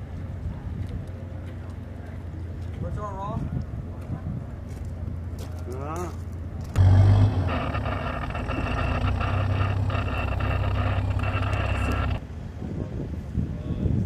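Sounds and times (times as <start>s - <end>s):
diesel engine drone with whine: 6.4s - 12.3s.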